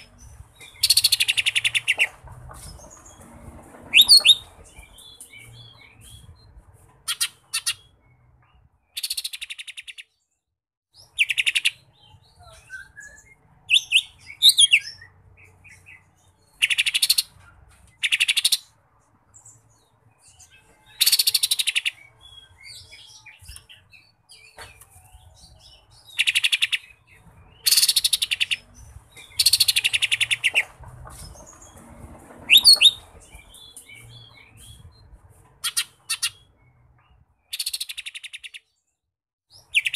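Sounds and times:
bird singing rattling trills: 0.0s - 10.1s, 19.4s - 38.7s.

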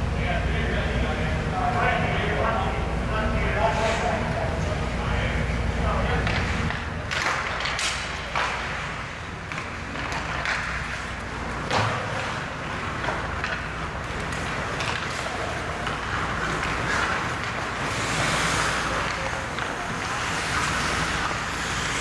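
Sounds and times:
sticks hitting puck: 6.1s - 22.0s
skate blades scraping ice: 6.2s - 22.0s.

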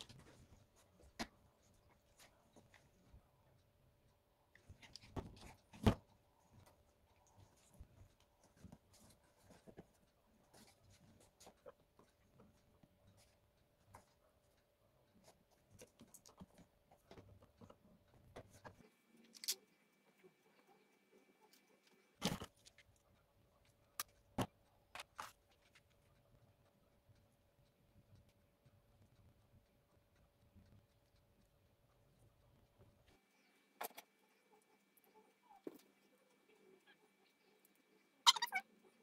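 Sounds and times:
faint steady hum: 0.0s - 39.0s
miniatures clicking and tapping: 15.2s - 26.0s.

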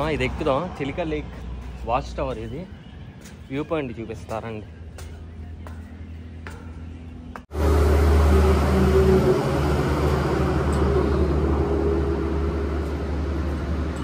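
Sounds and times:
low engine drone: 7.3s - 14.0s.

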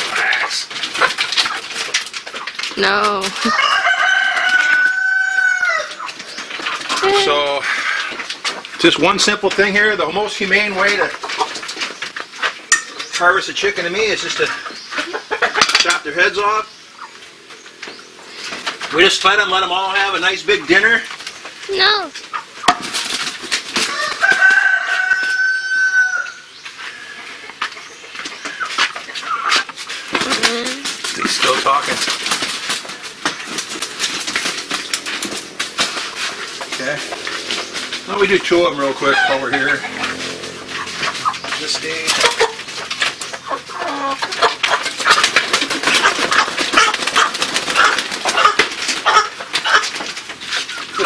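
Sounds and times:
chicken squawking in distress: 0.0s - 1.6s, 3.1s - 6.1s, 23.8s - 27.2s, 38.8s - 41.4s
rooster crowing: 3.4s - 6.1s, 23.8s - 26.5s, 39.0s - 39.9s
wings flapping rapidly: 29.8s - 38.3s, 44.2s - 51.0s.

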